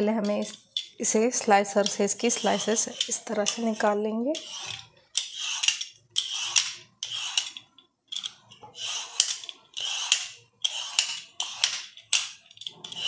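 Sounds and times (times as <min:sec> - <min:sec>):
slicer scraping peel off gourd: 0:01.8 - 0:07.5.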